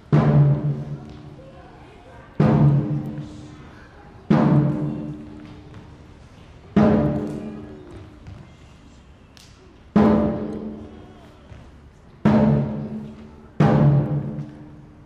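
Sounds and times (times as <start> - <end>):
barrel drum booming: 2.4 - 3.2, 13.6 - 14.5.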